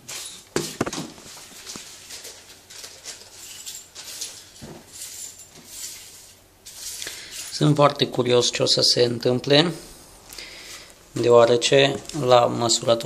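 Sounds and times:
scraping and rustling: 0.0 - 7.7.

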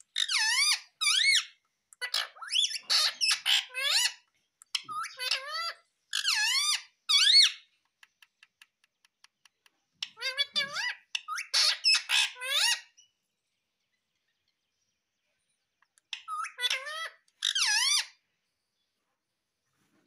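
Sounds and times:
parakeet calling and chattering: 0.0 - 7.8, 9.9 - 13.2, 15.7 - 18.3.

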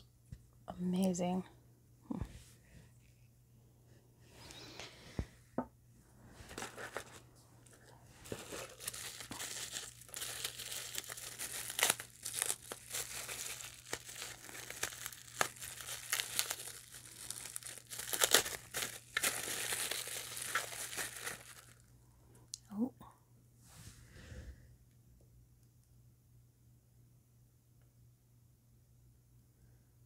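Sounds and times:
bubble wrap crinkling and clicking: 6.5 - 21.9.

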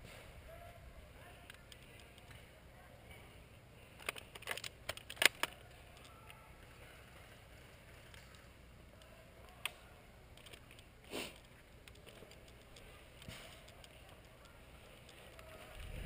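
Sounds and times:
sharp clicks and snaps: 4.0 - 6.4, 9.0 - 15.9.

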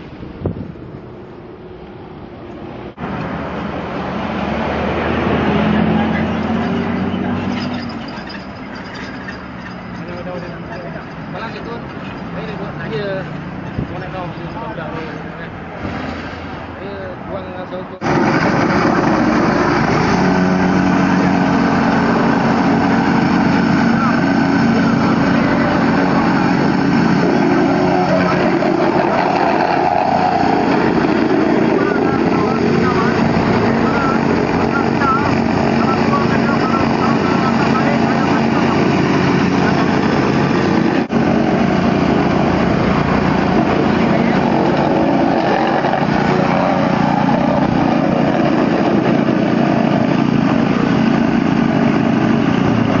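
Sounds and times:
plate compactor running: 18.0 - 53.0.

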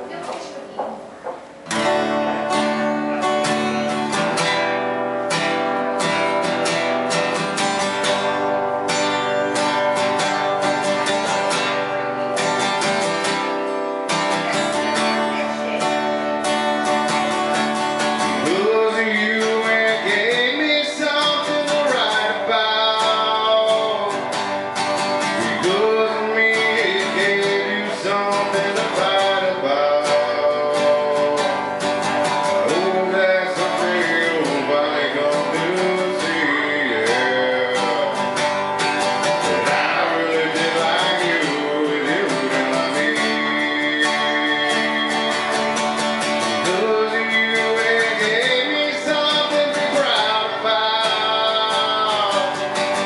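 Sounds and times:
acoustic guitar strumming: 0.0 - 53.0
man singing: 18.0 - 53.0.

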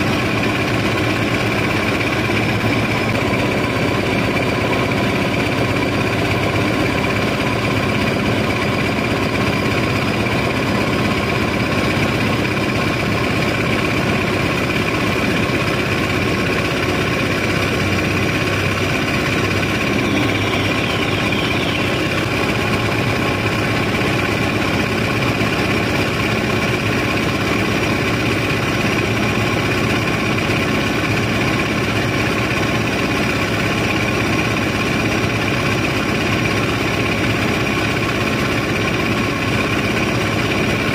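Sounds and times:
diesel engine running: 0.0 - 40.9
machinery whining tones: 17.3 - 26.8.

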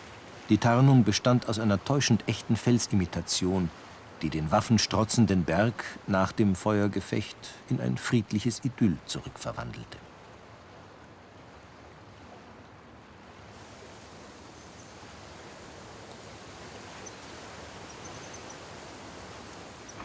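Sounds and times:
outdoor background rush: 0.0 - 20.0
faint high chirps: 16.9 - 18.6.

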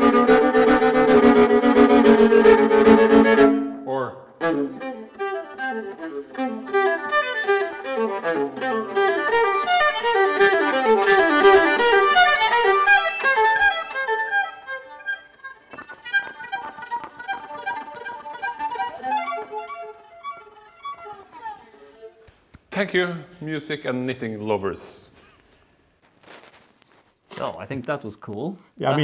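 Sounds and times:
solo violin melody: 0.0 - 22.5.

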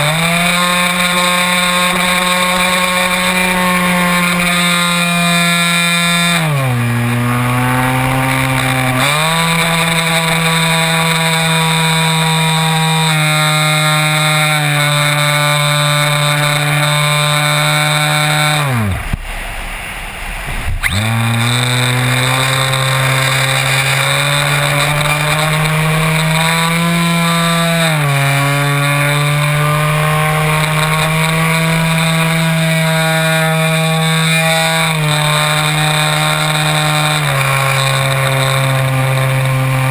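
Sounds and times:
electric motor and propeller drone: 0.0 - 39.9
rush of air: 18.9 - 21.3.

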